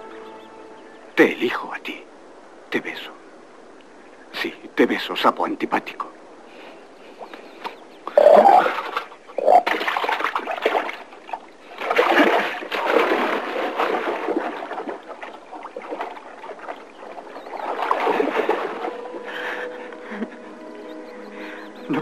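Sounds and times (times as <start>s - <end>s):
water splashing and churning: 7.0s - 20.2s.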